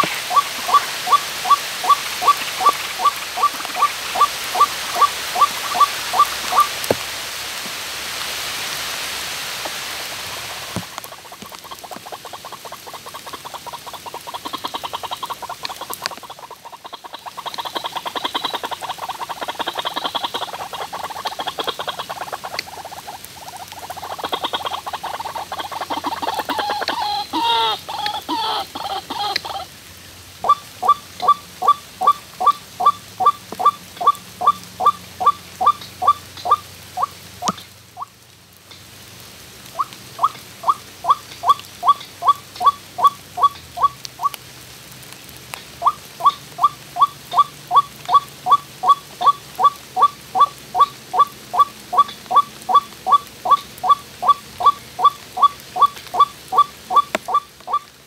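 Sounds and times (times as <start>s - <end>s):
bird croaking and chattering: 0.0s - 6.7s, 11.1s - 29.7s, 39.8s - 44.4s, 45.8s - 57.9s
steady hiss: 0.0s - 58.0s.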